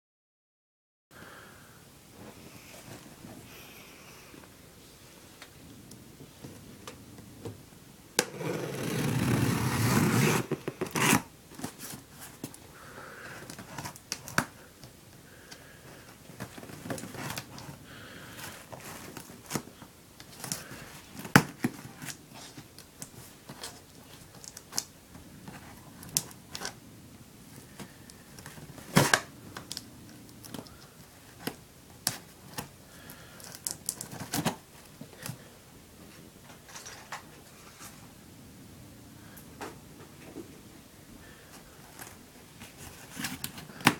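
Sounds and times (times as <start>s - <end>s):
knife slitting packing tape: 8.3s - 11.3s.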